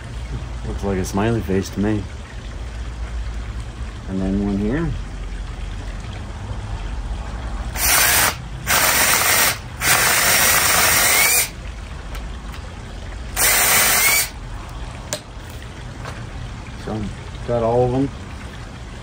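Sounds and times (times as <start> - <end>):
cordless drill boring into log: 7.8 - 11.5, 13.4 - 14.3.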